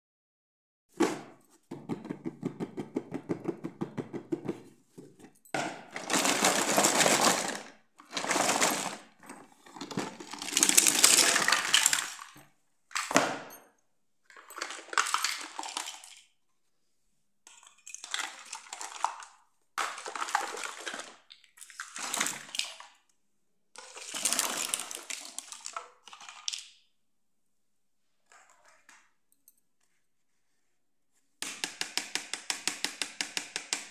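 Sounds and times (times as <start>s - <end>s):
plastic toys clattering on tile: 5.0s - 13.6s, 14.2s - 16.4s, 23.8s - 26.8s.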